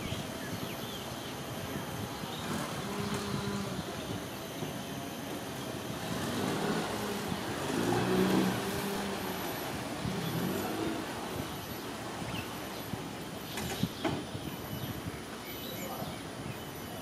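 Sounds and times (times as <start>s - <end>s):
traffic noise: 0.0s - 17.0s
motor vehicle passing: 5.8s - 12.9s.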